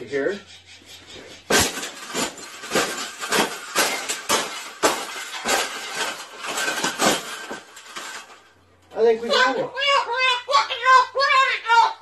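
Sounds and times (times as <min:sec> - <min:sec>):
wire birdcage being crushed: 0:01.5 - 0:08.6.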